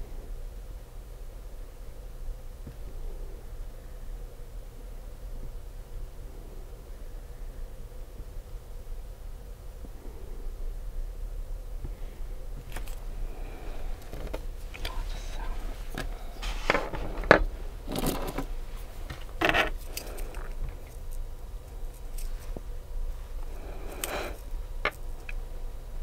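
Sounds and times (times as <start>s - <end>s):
nail tools scraping: 15.9s - 21.2s, 23.4s - 25.4s.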